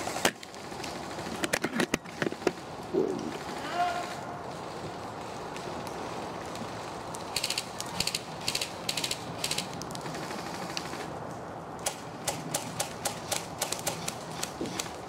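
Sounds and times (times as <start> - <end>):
airsoft guns firing: 0.0 - 4.3, 11.8 - 15.0.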